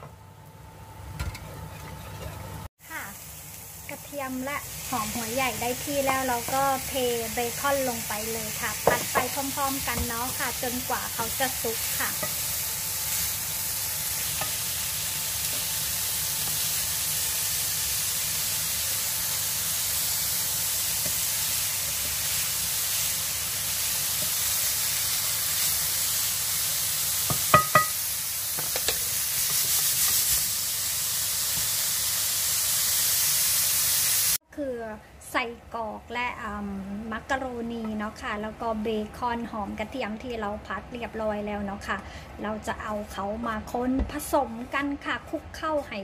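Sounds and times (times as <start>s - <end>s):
bacon sizzling in a pan: 2.8s - 34.4s
knocks against a pan: 27.3s - 28.0s.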